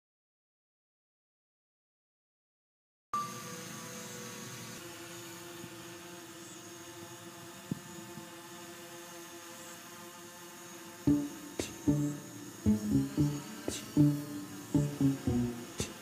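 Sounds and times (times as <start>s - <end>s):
drone motors humming: 11.0s - 16.0s.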